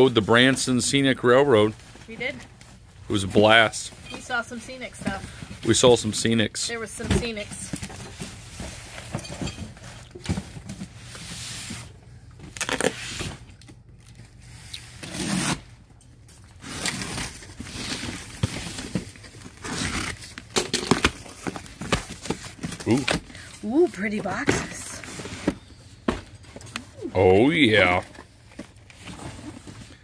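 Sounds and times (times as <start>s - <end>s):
cardboard and bubble wrap rustling: 0.0s - 30.0s
tape tearing: 12.5s - 15.8s, 16.5s - 23.2s
box cutter slitting tape: 14.8s - 15.7s.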